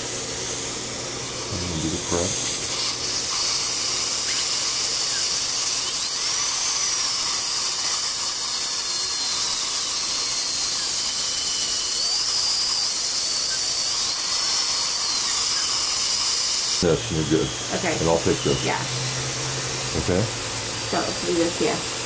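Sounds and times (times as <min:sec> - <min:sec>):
dental drill whining: 0:00.0 - 0:22.0
steady hiss: 0:00.0 - 0:22.0.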